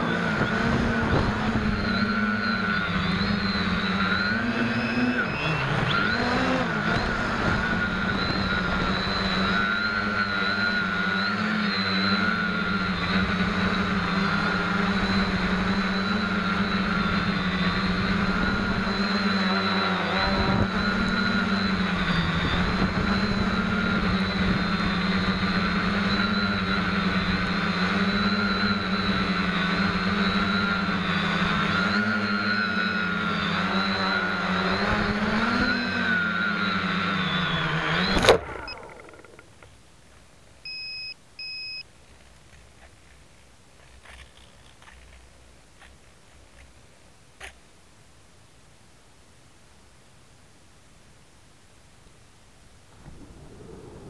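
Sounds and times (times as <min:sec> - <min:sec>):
quadcopter propellers buzzing: 0:00.0 - 0:39.6, 0:52.9 - 0:54.0.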